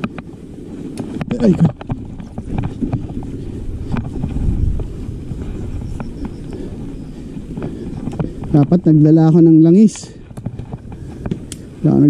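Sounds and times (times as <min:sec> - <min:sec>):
bike tyres and drivetrain rumbling: 0:00.0 - 0:12.0
wind buffeting microphone: 0:00.0 - 0:12.0
person speaking: 0:01.2 - 0:01.8, 0:08.5 - 0:10.2.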